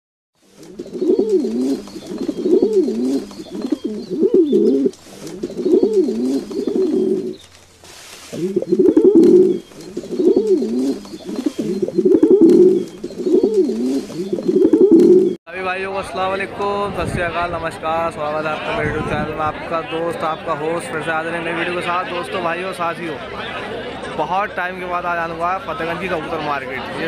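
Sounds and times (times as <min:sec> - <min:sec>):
pigeon cooing: 0:00.6 - 0:07.4, 0:08.3 - 0:15.4.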